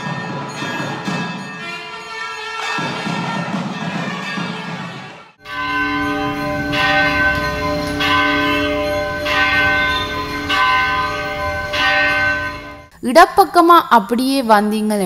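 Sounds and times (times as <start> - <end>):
large bell tolling: 5.4 - 13.0.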